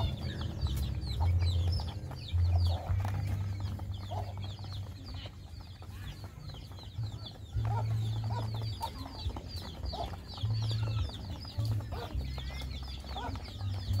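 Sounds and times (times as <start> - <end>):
chickens clucking: 0.0 - 14.0
chicks peeping: 0.0 - 14.0.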